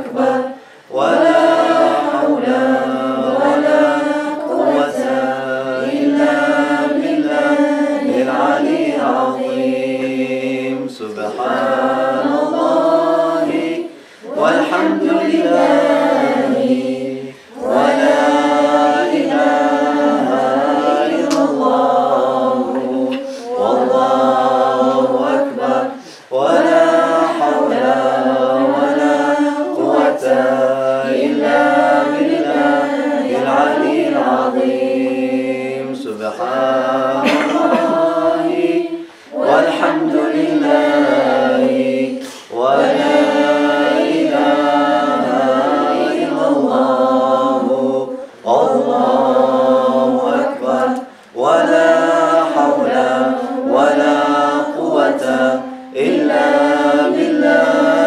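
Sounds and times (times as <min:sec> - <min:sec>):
men and women chanting together: 0:00.0 - 0:58.0.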